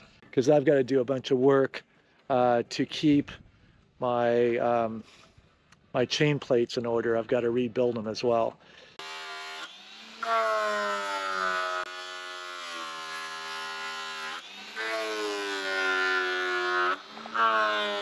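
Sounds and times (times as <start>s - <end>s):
angle grinder whining on metal: 8.9s - 18.0s.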